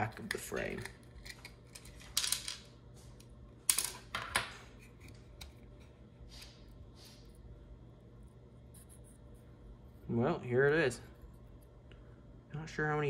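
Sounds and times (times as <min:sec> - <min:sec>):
plastic parts clicking and clattering: 0:00.0 - 0:02.6.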